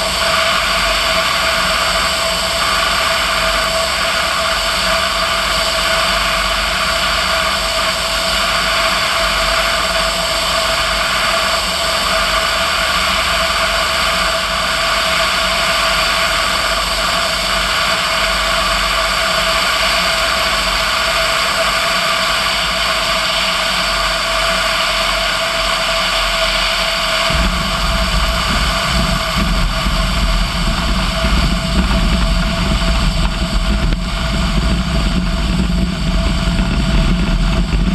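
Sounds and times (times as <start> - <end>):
light aircraft engine drone: 0.0 - 37.9
wheels rumbling on grass runway: 0.0 - 37.9
wind rush: 25.2 - 37.9.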